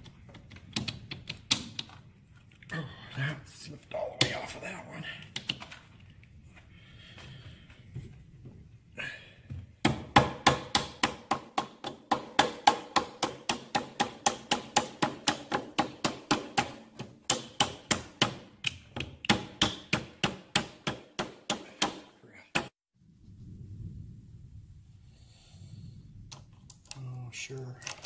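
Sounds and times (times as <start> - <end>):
hammer striking metal: 9.8 - 18.5.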